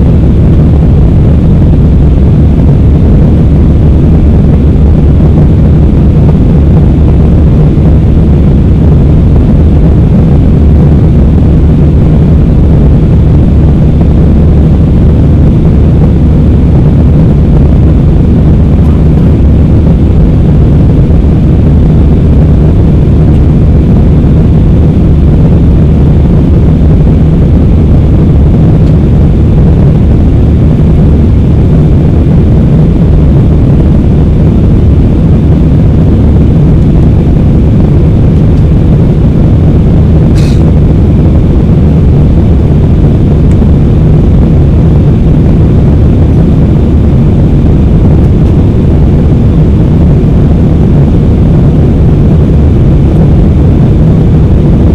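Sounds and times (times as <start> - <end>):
jet engine and airflow rush: 0.0 - 54.9.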